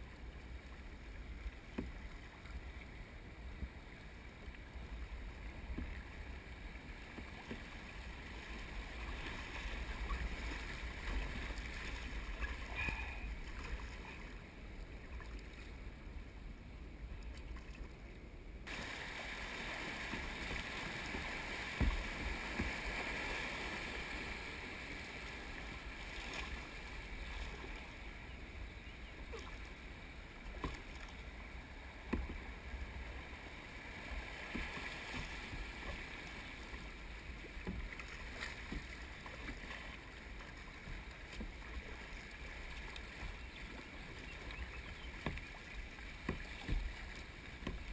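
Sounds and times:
kayak knocks: 1.6s - 2.2s, 5.5s - 13.8s, 19.9s - 23.2s, 30.4s - 31.1s, 32.0s - 33.0s, 34.4s - 36.1s, 36.7s - 47.9s
river water rushing: 5.4s - 15.3s, 18.7s - 28.4s.

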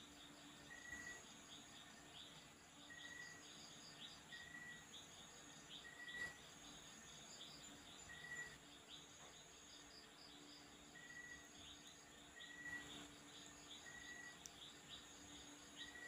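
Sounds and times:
insects and birds chirping: 0.0s - 16.0s.

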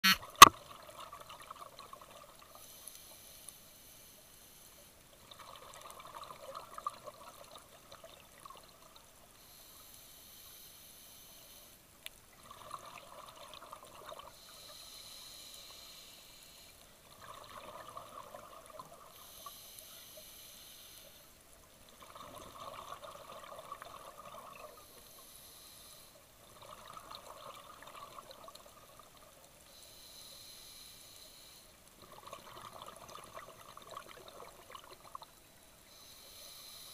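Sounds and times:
regulator inhale hiss: 2.5s - 5.0s, 9.4s - 11.8s, 14.3s - 16.8s, 19.1s - 21.4s, 24.8s - 26.3s, 29.6s - 31.8s, 35.8s - 36.9s
exhaled bubbles underwater: 5.2s - 9.0s, 12.4s - 14.3s, 17.1s - 19.1s, 21.9s - 24.8s, 26.4s - 29.3s, 32.0s - 35.3s.

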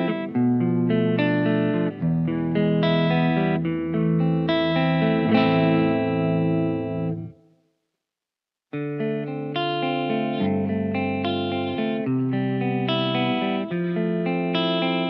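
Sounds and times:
clean electric guitar playing: 0.0s - 7.4s, 8.8s - 15.0s.

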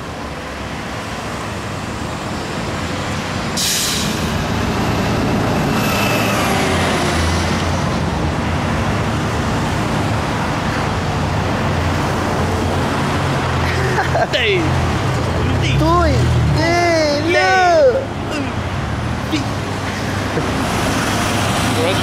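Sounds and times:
city street traffic: 0.0s - 22.0s
large vehicle engine rumbling: 0.0s - 22.0s
short sharp hiss: 3.6s - 4.3s.

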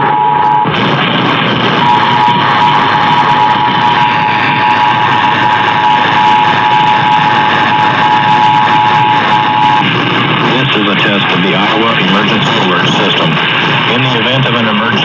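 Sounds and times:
two-tone alert signal: 0.0s - 0.7s, 1.8s - 9.9s
radio hiss: 0.7s - 15.0s.

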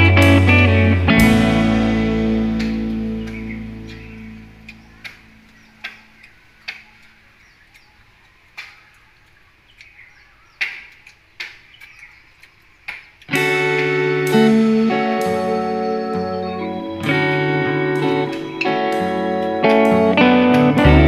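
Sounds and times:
guitar music: 0.0s - 5.7s, 13.3s - 21.0s
faint bird chirps: 2.4s - 20.4s.

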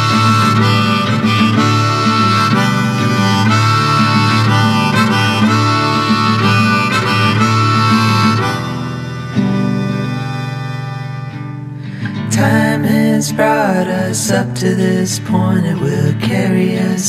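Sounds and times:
harmonica melody: 0.0s - 12.4s
guitar accompaniment: 0.0s - 17.0s.

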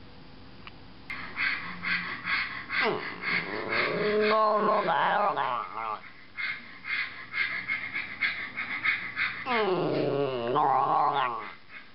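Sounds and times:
dog howling: 2.8s - 6.0s, 9.4s - 11.6s.

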